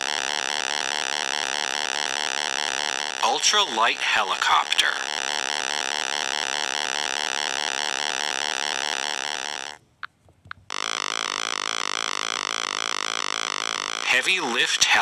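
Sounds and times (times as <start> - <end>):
synthesized helicopter buzz: 0.0 - 9.8, 10.7 - 15.0.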